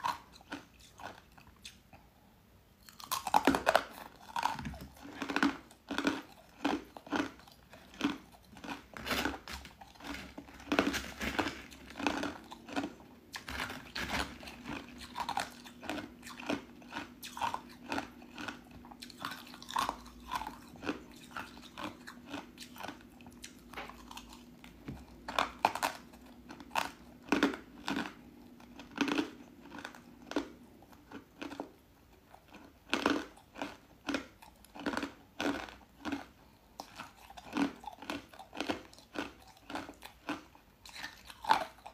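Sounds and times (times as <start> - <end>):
ice being chewed: 0.0 - 2.0, 2.8 - 41.9.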